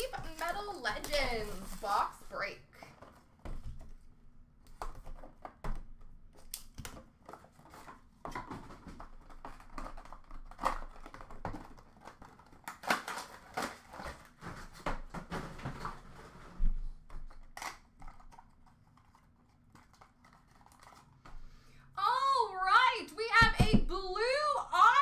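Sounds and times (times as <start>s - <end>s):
packaging crinkling: 0.0s - 2.4s, 8.6s - 14.8s, 17.2s - 21.3s.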